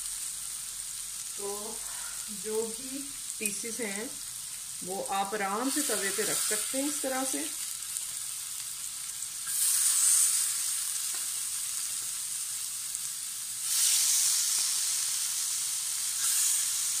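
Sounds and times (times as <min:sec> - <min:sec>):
chicken sizzling on hot pan: 0:00.0 - 0:17.0.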